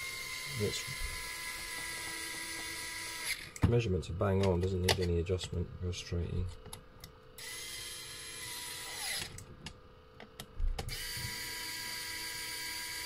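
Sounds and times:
electric screwdriver motor whine: 0:00.0 - 0:03.6, 0:07.4 - 0:09.4, 0:10.9 - 0:13.0.

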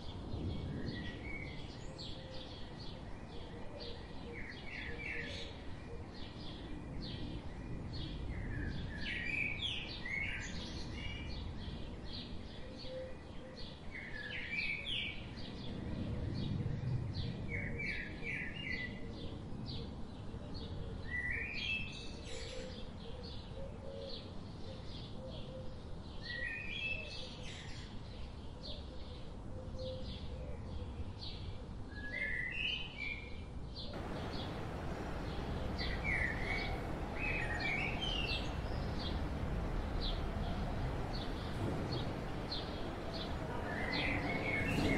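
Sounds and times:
songbirds singing: 0:00.0 - 0:44.9
background hiss: 0:34.0 - 0:44.9
faint bird chirps: 0:34.0 - 0:44.9
low outdoor rumble: 0:34.0 - 0:44.9.

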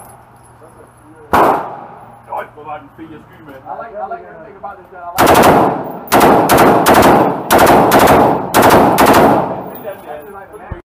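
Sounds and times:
rifle firing rapid bursts: 0:05.2 - 0:09.7.

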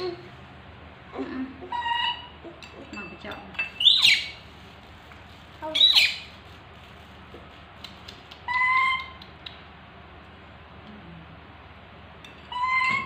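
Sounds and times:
baby monkey calling: 0:01.6 - 0:02.6, 0:05.8 - 0:06.3, 0:08.3 - 0:09.3, 0:12.5 - 0:13.0.

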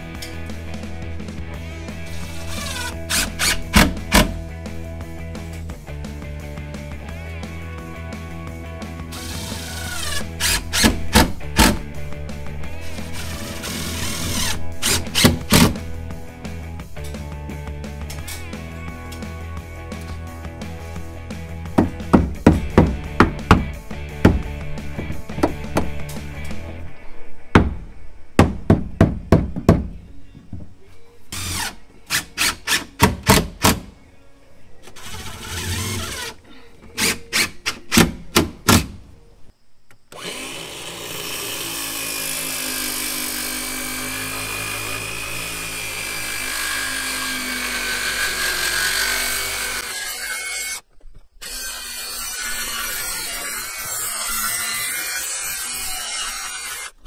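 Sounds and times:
power tool running: 0:02.1 - 0:04.4, 0:09.1 - 0:11.8, 0:12.8 - 0:15.8, 0:40.1 - 0:50.8.

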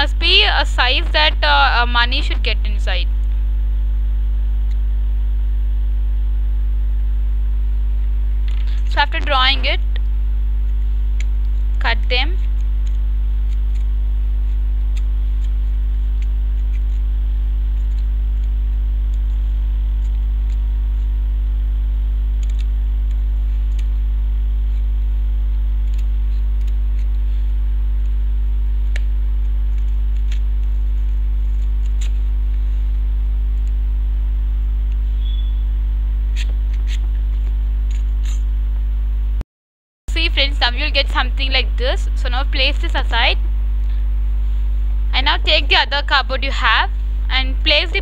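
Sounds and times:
electrical mains hum: 0:00.0 - 0:39.4, 0:40.1 - 0:48.0.

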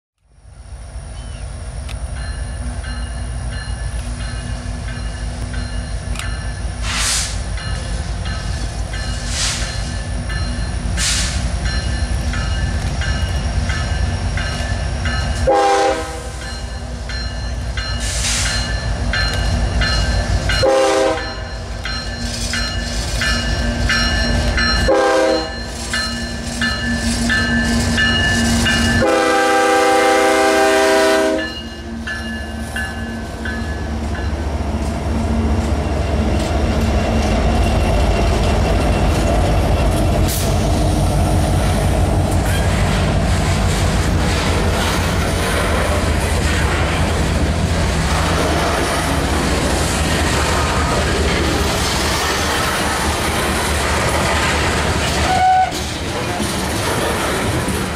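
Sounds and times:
locomotive engines rumbling: 0:00.3 - 0:57.9
crossing bell ringing: 0:02.0 - 0:35.0
train horn blasts: 0:15.4 - 0:16.4, 0:20.6 - 0:21.5, 0:24.8 - 0:25.7, 0:28.4 - 0:31.8, 0:55.2 - 0:55.8.

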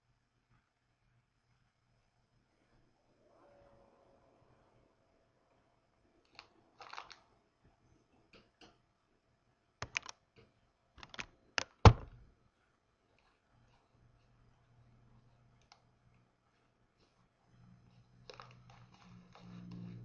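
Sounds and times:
keyboard and mouse clicks: 0:09.8 - 0:10.2, 0:11.0 - 0:12.2
loud thump: 0:11.8 - 0:12.2.

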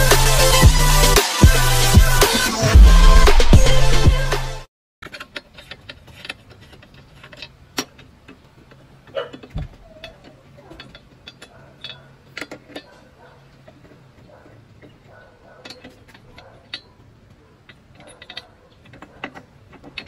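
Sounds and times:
intro music: 0:00.0 - 0:04.7.

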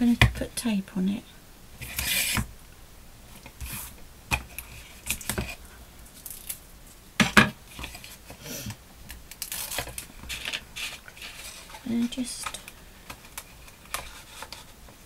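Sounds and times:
paper rustling and crinkling: 0:09.3 - 0:15.0.

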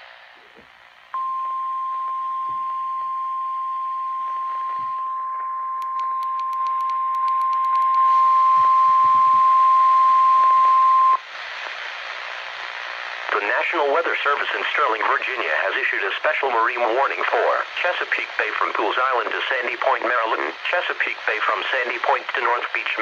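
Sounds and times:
steady high alarm tone: 0:01.2 - 0:11.2.

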